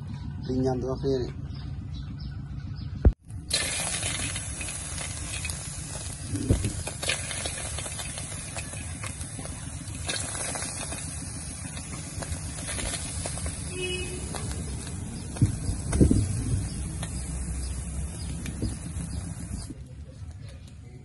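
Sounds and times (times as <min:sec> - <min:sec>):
insects sizzling in a wok: 0:03.5 - 0:19.7.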